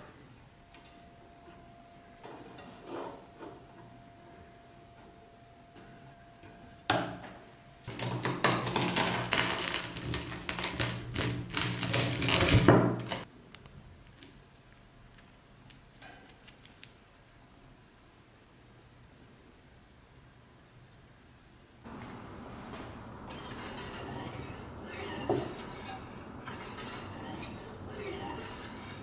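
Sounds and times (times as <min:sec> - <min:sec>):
crust crunching: 0:08.0 - 0:13.3.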